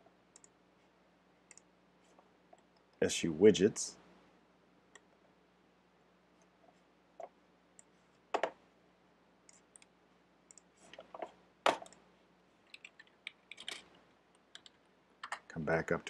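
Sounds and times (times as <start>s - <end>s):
mouse clicks: 1.5s - 1.7s.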